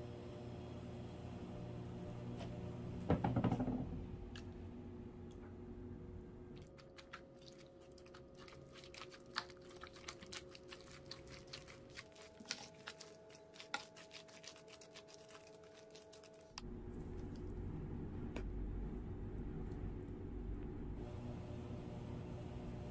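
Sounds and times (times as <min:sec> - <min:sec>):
spoon stirring wet mixture: 0:06.6 - 0:17.5.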